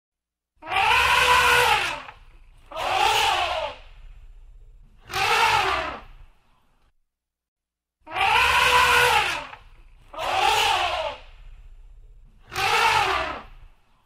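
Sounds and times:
elephant trumpeting: 0:00.6 - 0:03.8, 0:05.0 - 0:06.2, 0:08.1 - 0:11.4, 0:12.4 - 0:13.7.

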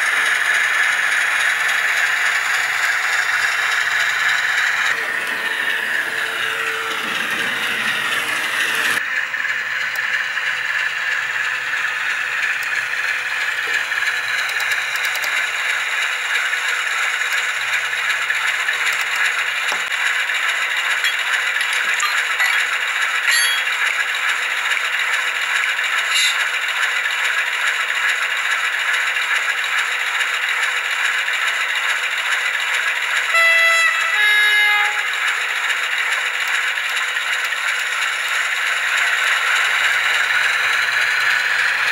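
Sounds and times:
diesel engine idling through small speaker: 0:00.0 - 0:41.9
locomotive horn tones: 0:04.9 - 0:09.0, 0:33.3 - 0:35.5.

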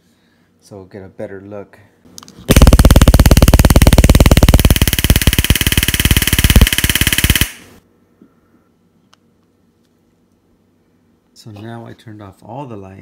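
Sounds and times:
stun gun arcing crackle: 0:02.5 - 0:07.8.

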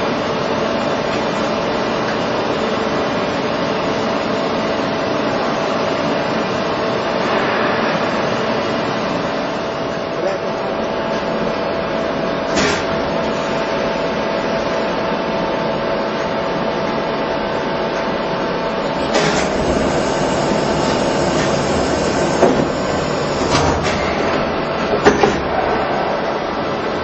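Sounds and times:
machine hum with whine: 0:00.0 - 0:27.0
loud hiss: 0:18.9 - 0:24.2.

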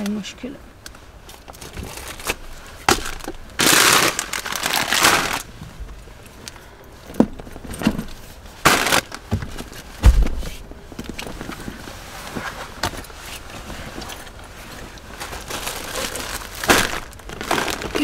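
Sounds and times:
plastic bags rustling: 0:01.0 - 0:06.4, 0:07.3 - 0:18.0
heavy thump: 0:09.3 - 0:10.6.

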